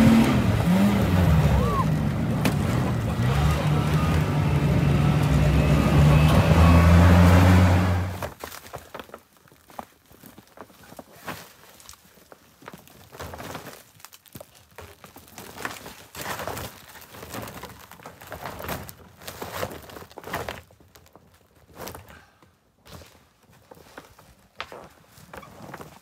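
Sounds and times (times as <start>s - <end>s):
dull thumps: 0.0s - 7.3s
fabric cover rustling: 22.9s - 26.0s.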